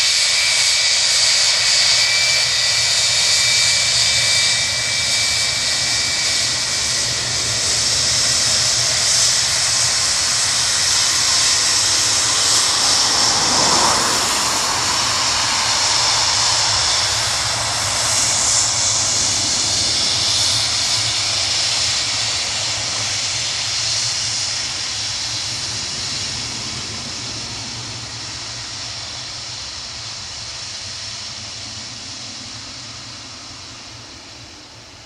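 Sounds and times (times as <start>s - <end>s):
jet engines at takeoff power: 0.0s - 35.0s.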